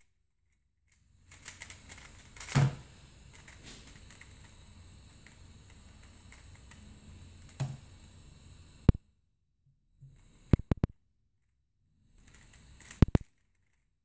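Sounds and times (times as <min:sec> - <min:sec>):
steady hiss: 0:01.1 - 0:09.0, 0:12.0 - 0:13.3.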